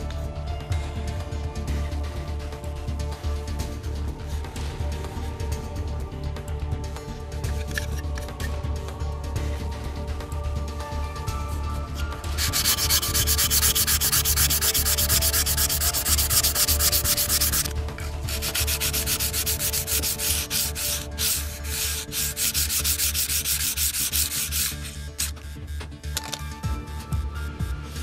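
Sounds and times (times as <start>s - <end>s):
sandpaper rubbing on plastic: 12.2s - 25.8s.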